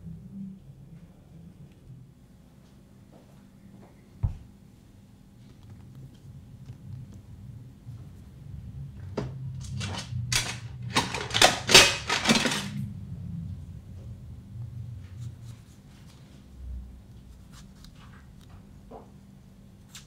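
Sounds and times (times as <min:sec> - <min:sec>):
kitchen clatters and scrapes: 0:09.6 - 0:12.9.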